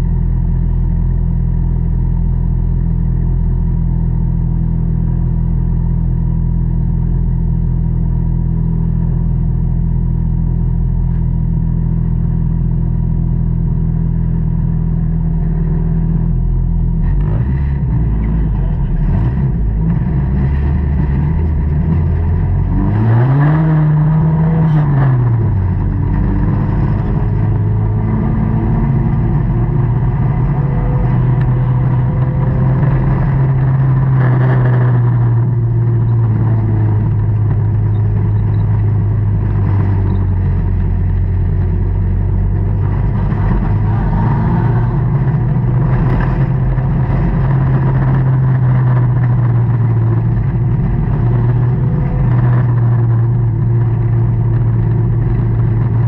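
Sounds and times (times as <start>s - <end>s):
stock car engine revving: 15.1s - 56.0s.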